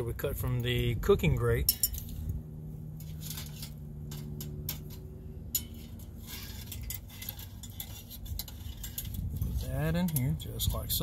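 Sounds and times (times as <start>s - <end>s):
low steady hum: 0.0s - 11.0s
metal rods clinking on steel panels: 1.5s - 2.2s, 3.0s - 11.0s.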